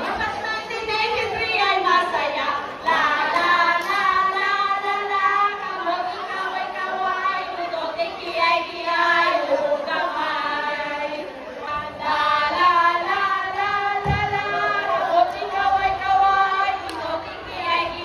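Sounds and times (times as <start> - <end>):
group of voices singing: 0.0 - 18.0.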